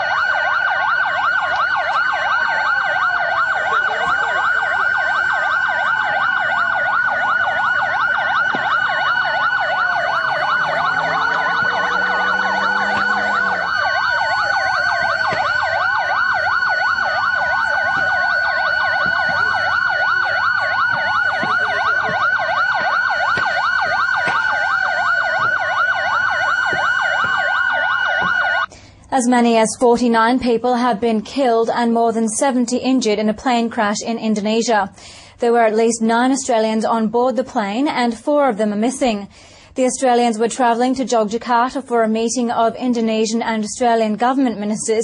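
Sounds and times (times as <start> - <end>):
emergency vehicle sirens wailing: 0.0 - 28.7.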